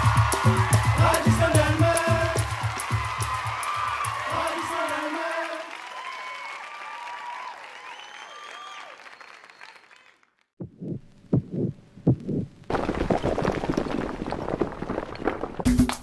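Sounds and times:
loud music: 0:00.0 - 0:03.4
deep heartbeat-like thumps: 0:10.6 - 0:12.6
crackling rush of crumbling debris: 0:12.7 - 0:15.7.

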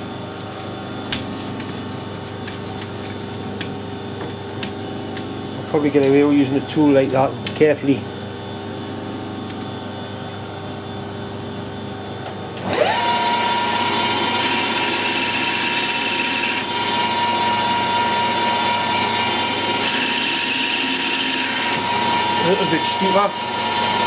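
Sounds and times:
steady low hum: 0:00.0 - 0:12.6
metal lathe motor whine: 0:11.8 - 0:24.0.

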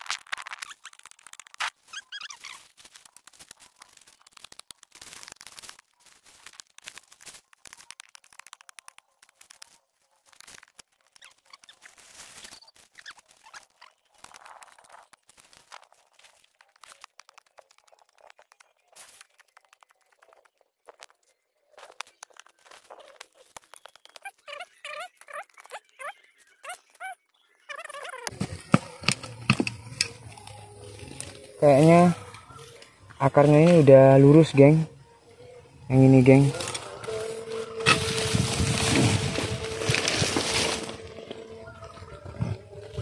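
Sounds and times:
soil crumbling: 0:00.0 - 0:24.5, 0:35.9 - 0:43.0
roots cracking: 0:00.0 - 0:26.0, 0:28.2 - 0:34.8, 0:35.9 - 0:43.0.

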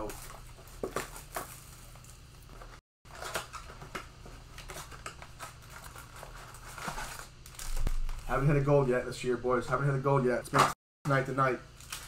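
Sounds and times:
cards and wrapper rustling: 0:00.0 - 0:08.6.

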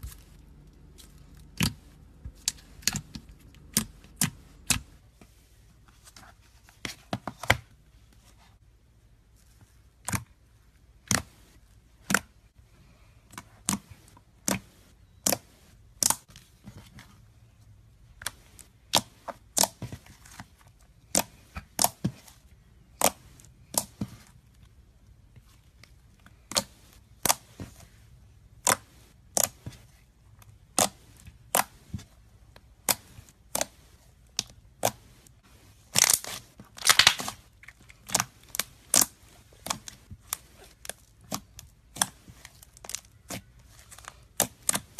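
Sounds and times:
slime crackling: 0:35.8 - 0:44.9
slime popping and clicking: 0:36.8 - 0:37.3.

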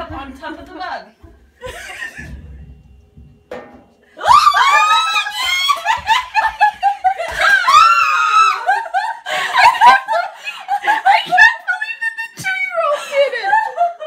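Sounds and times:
adults laughing loudly: 0:04.9 - 0:11.6.

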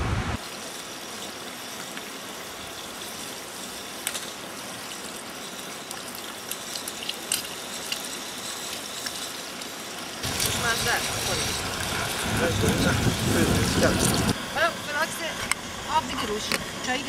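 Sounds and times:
eggs cracked against pan: 0:05.8 - 0:10.6.

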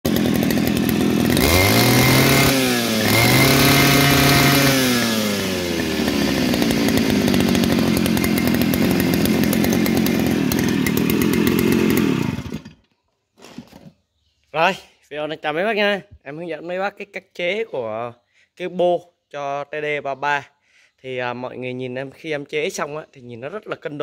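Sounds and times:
two-stroke engine revving: 0:00.1 - 0:12.8.

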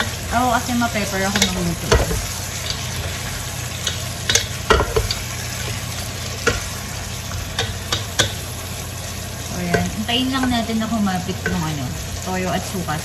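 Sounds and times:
pork sizzling in a pan: 0:00.0 - 0:13.0
utensil knocking against pan: 0:01.3 - 0:02.3, 0:04.2 - 0:05.2, 0:06.4 - 0:06.7, 0:07.5 - 0:08.4, 0:09.7 - 0:10.7.

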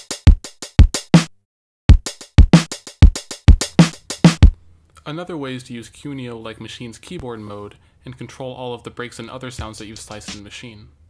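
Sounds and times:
drum machine beat: 0:00.0 - 0:04.6, 0:09.6 - 0:10.5.

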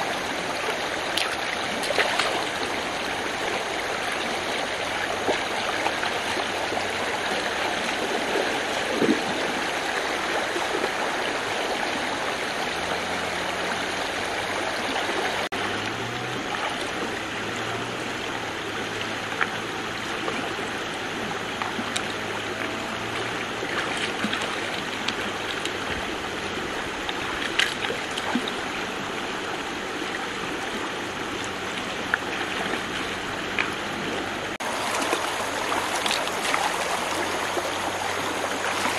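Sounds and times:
river water flowing over stones: 0:00.0 - 0:38.9
sharp knocks or splashes: 0:01.2 - 0:02.8.

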